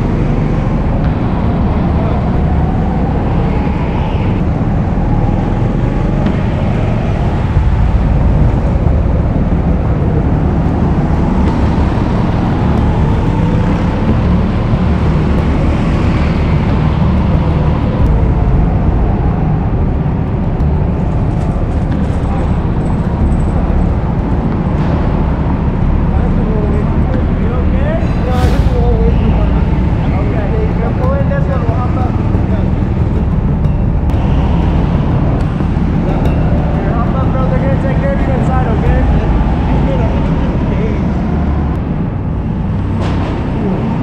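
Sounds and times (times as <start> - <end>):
low rumble of wind and vibration: 0.0 - 44.0.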